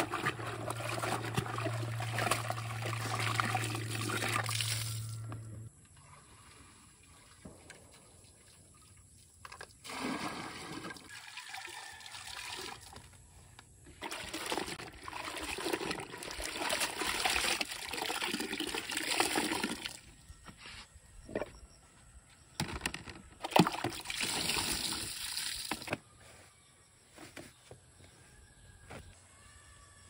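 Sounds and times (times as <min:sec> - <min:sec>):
water splashing in plastic basin: 0:00.0 - 0:05.1, 0:09.4 - 0:13.1, 0:14.0 - 0:20.0, 0:23.4 - 0:26.0.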